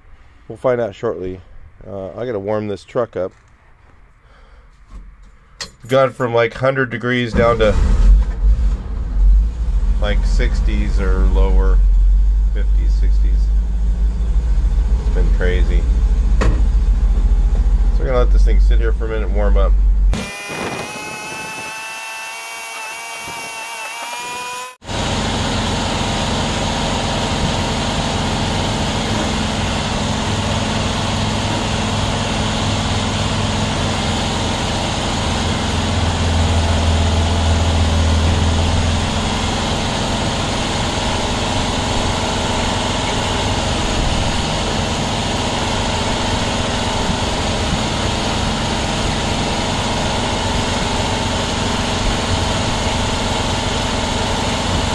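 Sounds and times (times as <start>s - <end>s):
rising pitched whine: 7.3s - 54.9s
truck engine idling: 8.5s - 20.1s, 24.9s - 54.9s.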